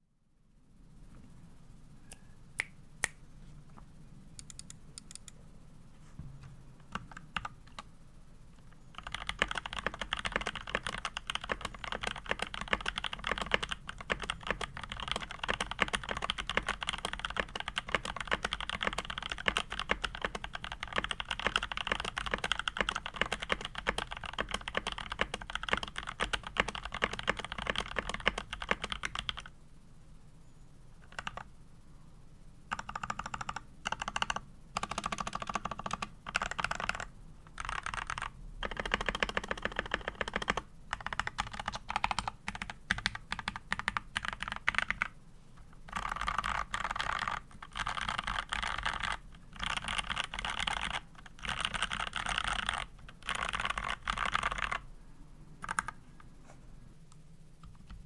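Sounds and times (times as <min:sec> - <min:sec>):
mechanical keyboard typing: 0:06.9 - 0:07.9, 0:08.9 - 0:29.5, 0:31.0 - 0:31.5, 0:32.7 - 0:45.1, 0:45.9 - 0:54.8, 0:55.6 - 0:56.0.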